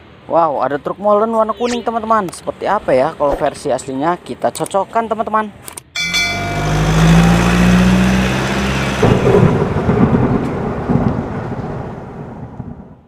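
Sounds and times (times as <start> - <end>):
thunder rumble and crackle: 7.2 - 13.0.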